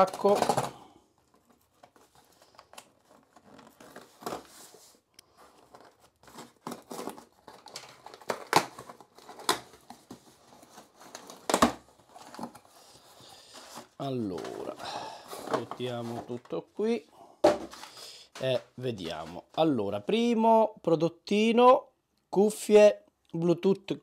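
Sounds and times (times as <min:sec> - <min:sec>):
packaging crinkling and tearing: 0:00.0 - 0:14.8
scissors cutting packaging: 0:05.6 - 0:12.6.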